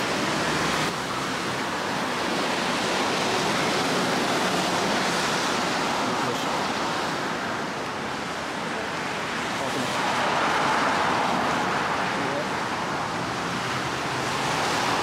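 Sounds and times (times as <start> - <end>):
street traffic hiss: 0.0 - 15.0.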